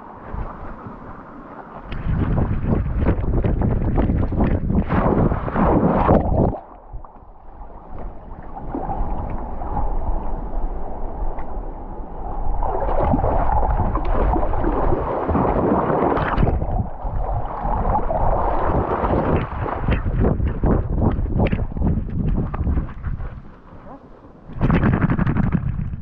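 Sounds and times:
creek water splashing and gurgling: 0:01.8 - 0:26.0
deep rumble: 0:16.2 - 0:26.0.

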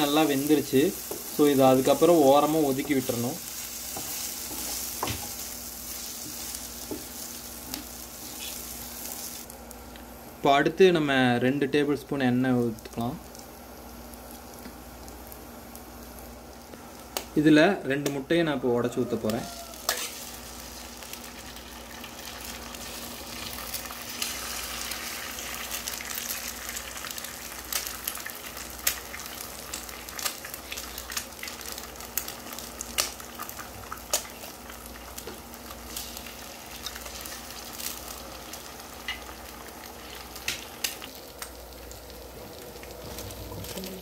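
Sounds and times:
eggs sizzling in hot oil: 0:00.0 - 0:10.3, 0:12.2 - 0:44.0
sharp crackling pops: 0:29.8 - 0:34.5, 0:40.3 - 0:42.0.

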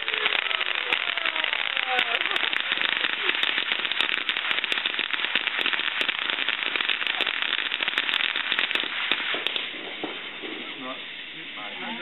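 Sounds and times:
firework crackling pops: 0:00.0 - 0:12.0
firework hissing: 0:00.0 - 0:12.0.

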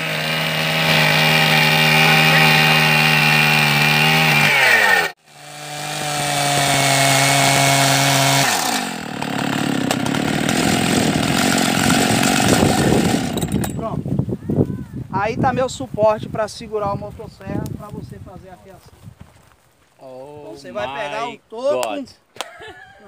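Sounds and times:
chainsaw cutting through log: 0:00.0 - 0:13.8.

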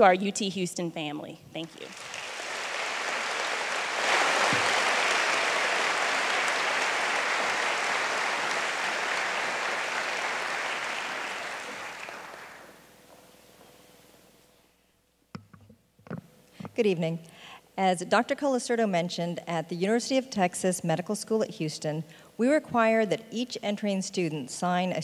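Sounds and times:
audience applauding: 0:01.7 - 0:12.8.

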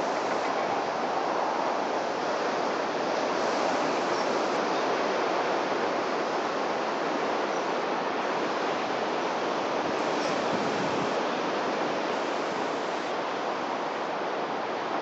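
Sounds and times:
sea surf rushing: 0:00.0 - 0:15.0.

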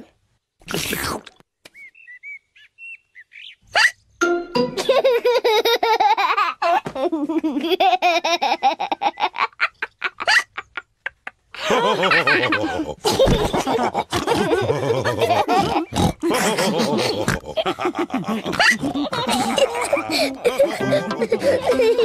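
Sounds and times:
child giggling: 0:04.8 - 0:22.0
voices laughing together: 0:04.8 - 0:22.0.

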